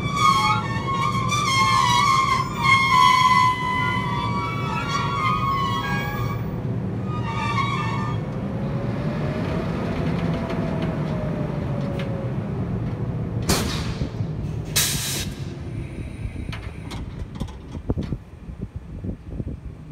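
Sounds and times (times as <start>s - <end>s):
sharp air hisses: 14.7s - 16.4s.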